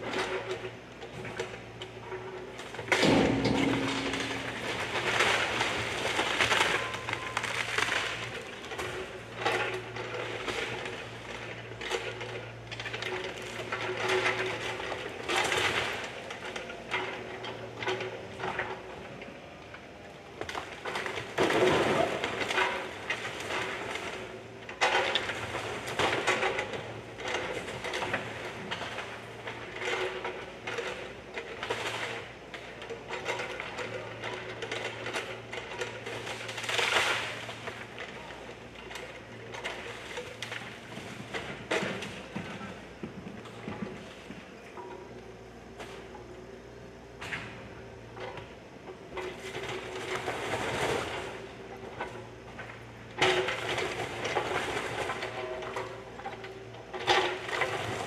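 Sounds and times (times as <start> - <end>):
excavator diesel engine running: 0.0 - 58.0
falling brick and debris crashing: 2.9 - 9.0.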